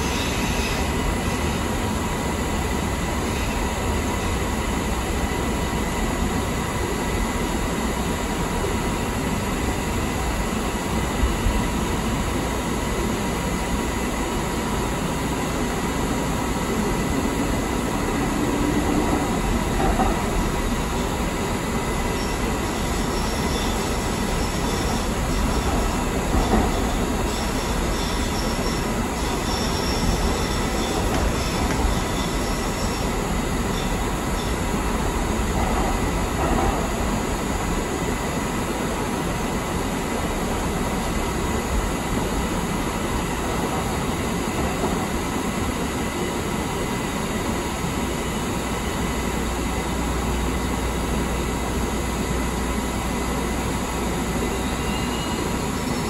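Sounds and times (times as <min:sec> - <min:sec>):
train wheels rumbling on track: 0:00.0 - 0:56.0
high-pitched wheel squeal: 0:22.2 - 0:34.6, 0:54.5 - 0:56.0.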